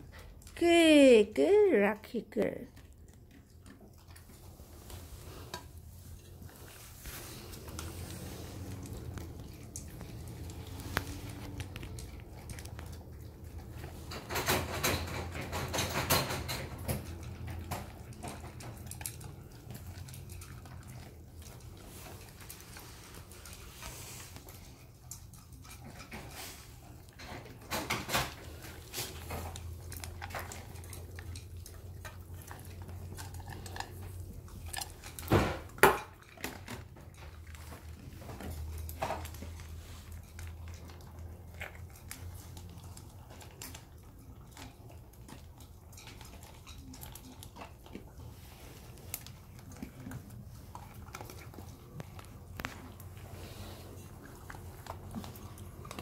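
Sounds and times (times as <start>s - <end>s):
puppies crunching kibble: 0.0s - 56.0s.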